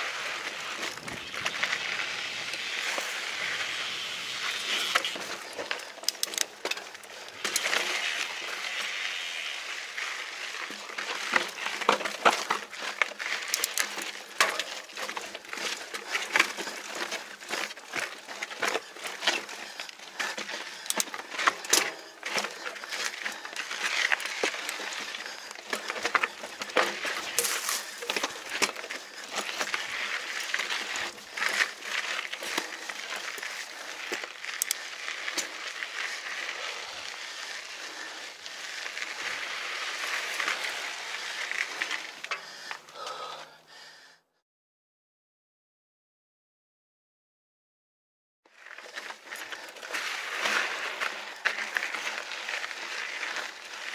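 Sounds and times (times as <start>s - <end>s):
bike clicking and rattling: 0.0s - 43.3s, 48.6s - 53.9s
bike tyres crunching on grit: 0.0s - 43.4s, 48.5s - 53.9s.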